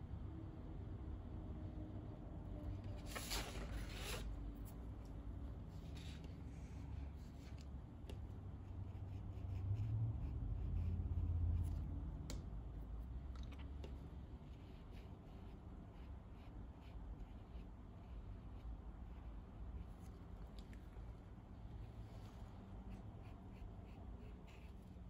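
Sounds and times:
paper rustling and sliding: 2.9s - 4.4s.

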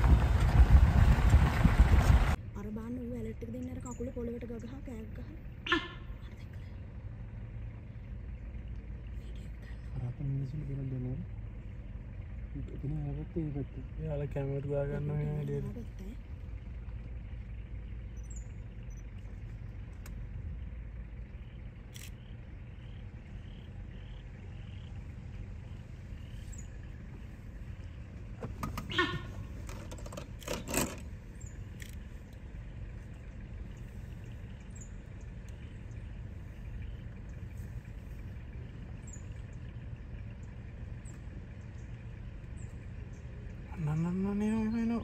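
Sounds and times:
vehicle engine idling: 0.0s - 45.0s
sharp clicks: 21.8s - 22.4s.

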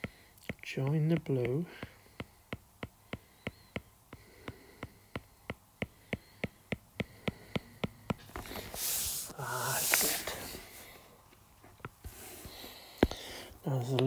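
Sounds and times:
stylus tapping on glass screen: 0.0s - 8.4s.

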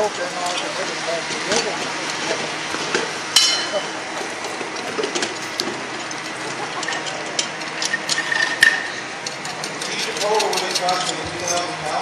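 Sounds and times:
metal clank: 3.4s - 3.9s
metal tools clinking: 3.4s - 3.9s, 4.8s - 12.0s.

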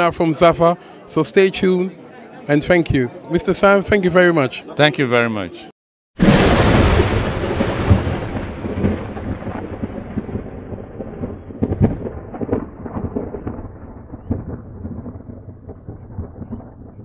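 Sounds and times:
thunder clap: 6.2s - 17.0s
thunder rumbling with crackles: 6.2s - 17.0s.

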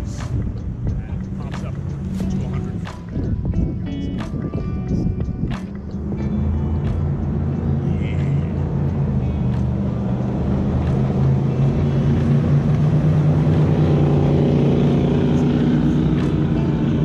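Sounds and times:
jet boat engine passing: 5.8s - 17.0s.

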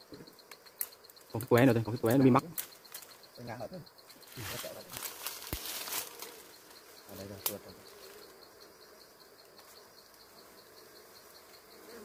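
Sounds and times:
bees buzzing: 0.0s - 12.0s
leaves and branches rustling: 0.2s - 8.6s.

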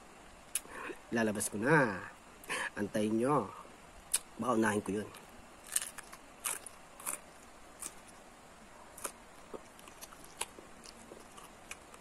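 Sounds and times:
mouth smacks: 0.5s - 1.0s
person chewing crisp food: 5.1s - 12.0s.

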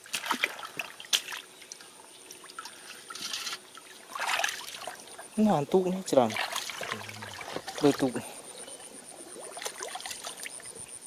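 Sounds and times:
rush of water: 0.0s - 8.4s
shallow water splashing: 0.0s - 10.8s.

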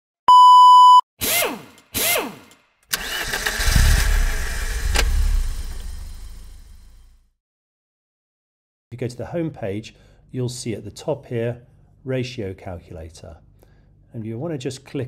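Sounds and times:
test-card beep: 0.3s - 1.0s
engine running: 2.9s - 7.2s
sharp click: 4.9s - 5.3s.

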